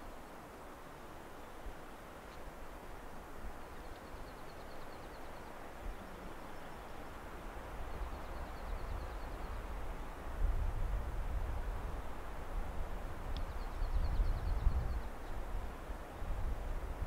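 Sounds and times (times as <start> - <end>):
wind through pines: 0.0 - 17.0
songbird trill: 3.5 - 10.2, 13.3 - 15.6.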